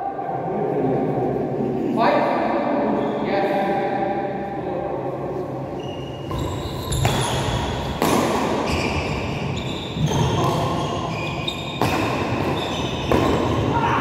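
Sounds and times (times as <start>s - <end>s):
badminton rackets hitting shuttlecock: 7.0s - 8.8s.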